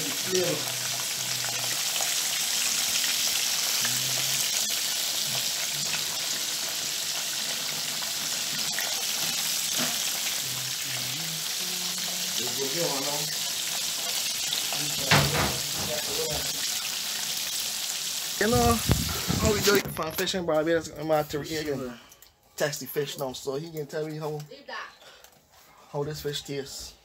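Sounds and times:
hot oil sizzling: 0.0s - 20.2s.

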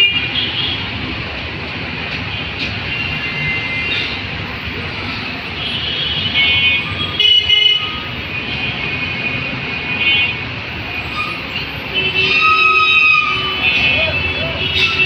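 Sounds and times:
vehicle horns honking: 5.6s - 15.0s.

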